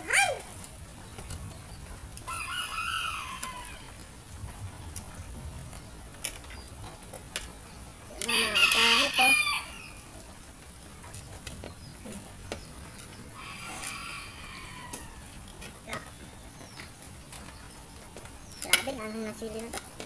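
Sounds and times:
rooster crowing: 0:02.3 - 0:04.0, 0:08.3 - 0:10.0, 0:13.4 - 0:15.4.

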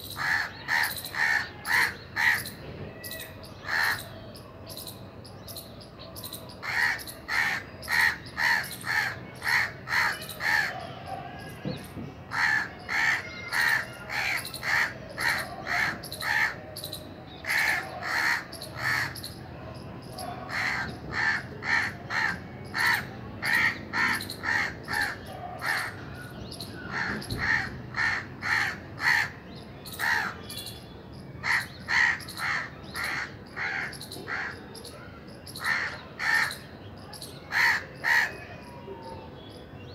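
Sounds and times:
crows cawing: 0:00.2 - 0:04.1, 0:06.6 - 0:16.7, 0:17.4 - 0:19.2, 0:20.2 - 0:26.2, 0:26.8 - 0:29.4, 0:30.0 - 0:30.4, 0:31.4 - 0:34.7, 0:35.6 - 0:36.7, 0:37.5 - 0:38.5.

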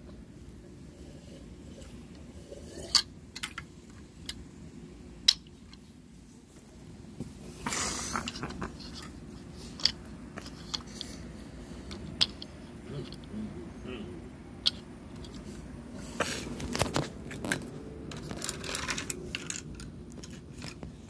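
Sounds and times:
plastic toy pieces clicking: 0:11.9 - 0:13.3, 0:18.1 - 0:20.8.

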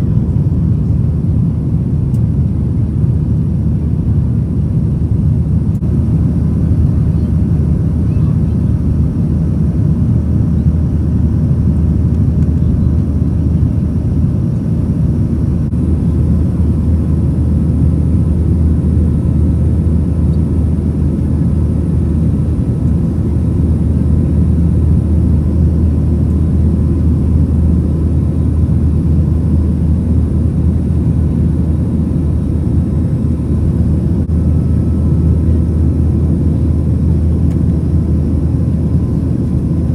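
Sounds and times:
faint steady whine: 0:00.0 - 0:39.9
low engine rumble: 0:00.0 - 0:39.9.

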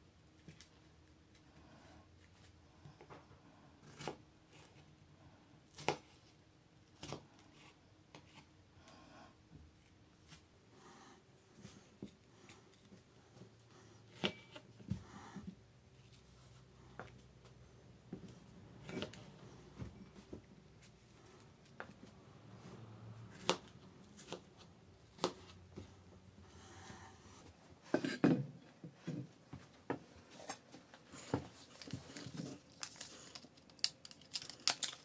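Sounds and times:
soft handling sounds: 0:11.4 - 0:35.0.

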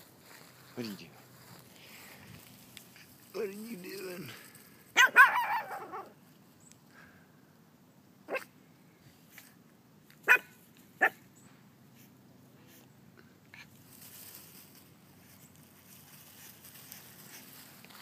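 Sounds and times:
puppy barking and yipping: 0:05.0 - 0:06.2, 0:08.3 - 0:08.5, 0:10.2 - 0:11.3.

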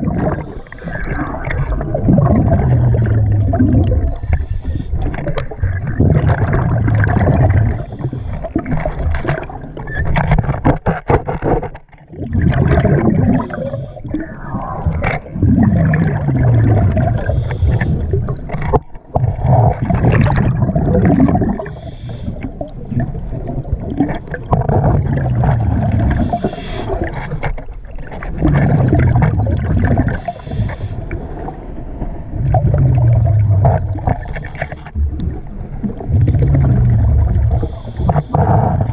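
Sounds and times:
diver exhaling bubbles: 0:00.0 - 0:09.9, 0:12.1 - 0:38.9
sharp clicks and knocks: 0:10.0 - 0:12.0.

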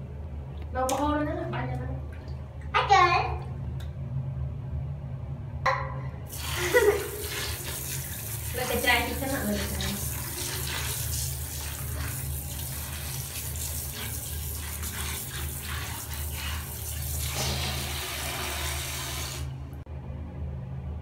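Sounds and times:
water pouring onto plastic toys: 0:06.3 - 0:19.4.

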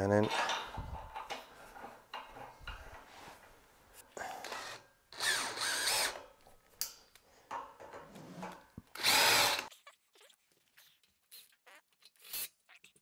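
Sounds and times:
cordless drill whine: 0:04.4 - 0:06.2, 0:09.0 - 0:09.7.

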